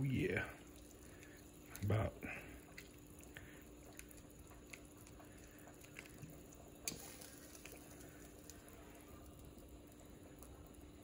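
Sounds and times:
faint steady hum: 0.0s - 11.0s
spoon stirring broth in a pot: 0.6s - 8.6s.

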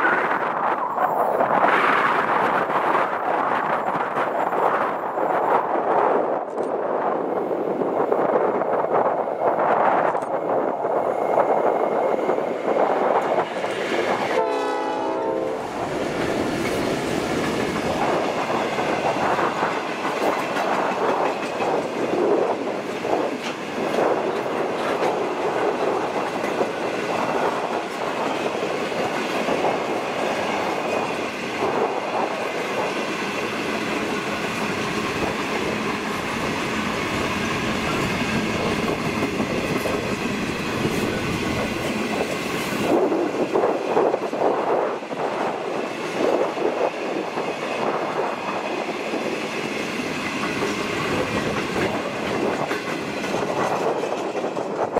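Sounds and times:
train wheels clacking on rails: 8.0s - 54.9s
locomotive horn blast: 14.3s - 15.7s.

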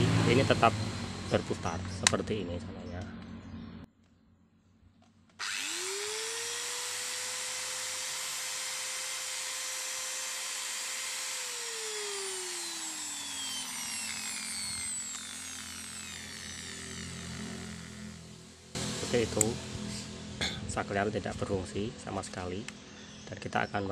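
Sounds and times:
angle grinder motor whining: 0.0s - 2.3s, 5.4s - 20.4s.

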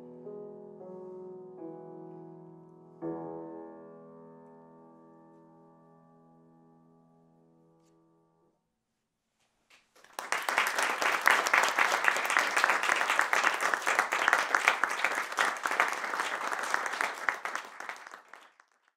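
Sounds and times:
audience applause: 10.0s - 18.9s.

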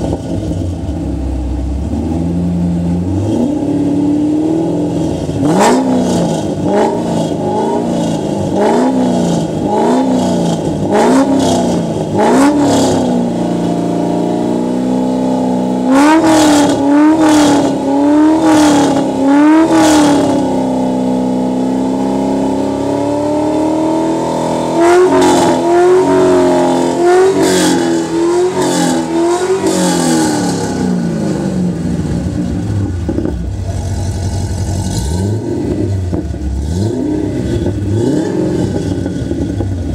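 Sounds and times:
car engine idling: 0.0s - 11.0s, 25.6s - 39.9s
car engine revving: 0.0s - 39.9s.

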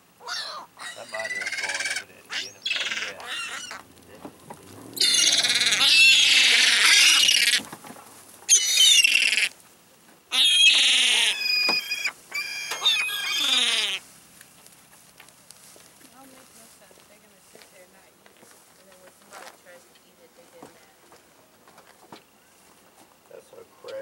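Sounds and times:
gulls calling: 0.0s - 9.6s, 10.3s - 14.0s.

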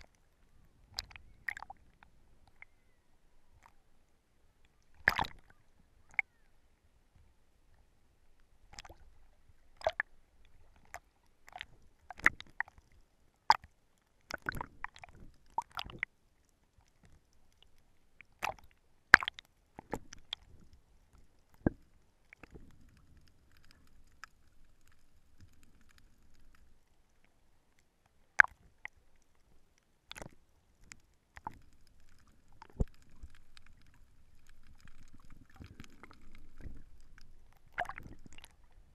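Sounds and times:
faint water noise: 0.0s - 38.9s
underwater clicks and knocks: 4.9s - 5.5s, 14.3s - 16.0s, 30.1s - 38.7s.

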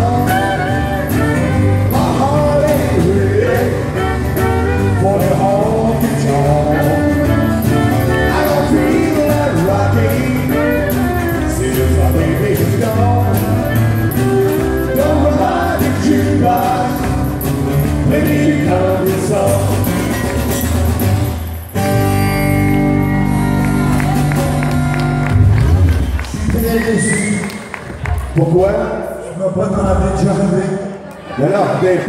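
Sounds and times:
country band playing: 0.0s - 30.6s
men singing together: 1.9s - 4.1s, 4.9s - 7.5s, 8.1s - 13.6s, 14.6s - 17.4s, 18.0s - 20.0s.

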